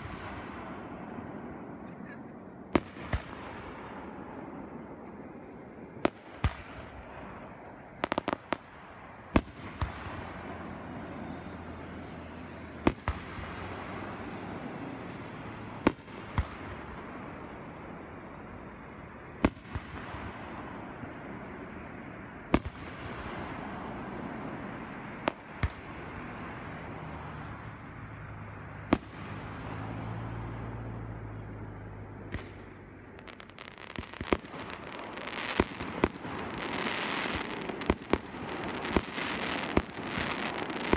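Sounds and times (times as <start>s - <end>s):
constant background noise: 0.0s - 40.9s
crackling firework pops: 2.7s - 4.4s, 6.0s - 10.4s, 15.8s - 17.2s, 19.4s - 20.4s, 22.5s - 23.8s, 25.2s - 25.9s, 28.9s - 29.7s, 32.2s - 40.9s.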